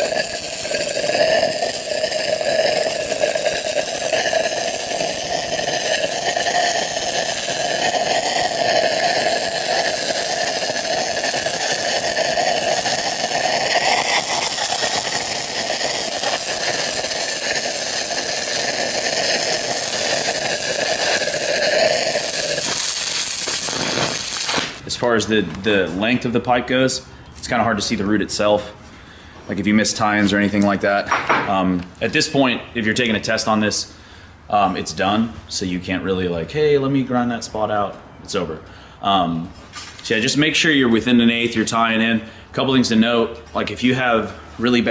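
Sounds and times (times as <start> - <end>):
welding arc crackling and hissing: 0.0 - 25.2.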